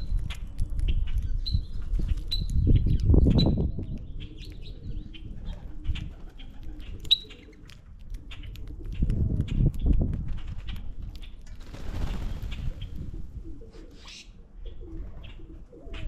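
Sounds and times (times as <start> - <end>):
bird wingbeats: 11.5 - 13.3.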